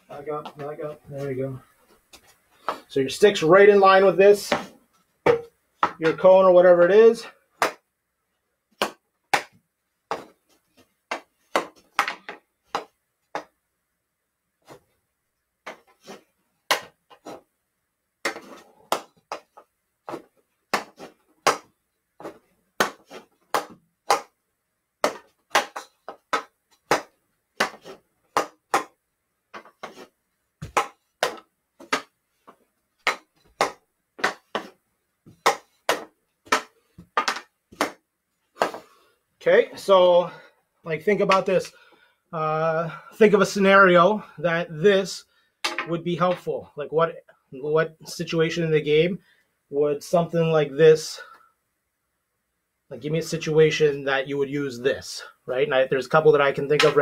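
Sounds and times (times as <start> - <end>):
hockey sticks striking ball: 18.2 - 24.4, 25.0 - 32.2, 33.0 - 38.0, 56.7 - 57.0.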